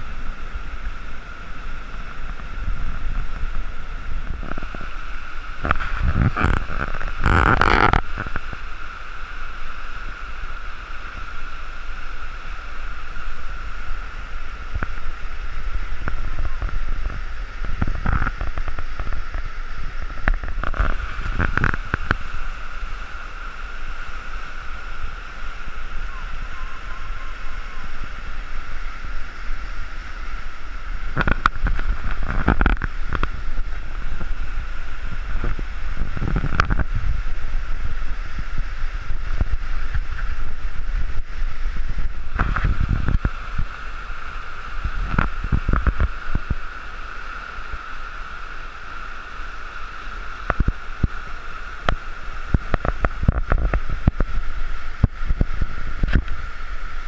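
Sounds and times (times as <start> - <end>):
wind buffeting on microphone: 0.0 - 8.7, 14.4 - 22.6, 25.7 - 46.8, 50.4 - 57.0
river rapids rushing over rocks: 0.0 - 57.0.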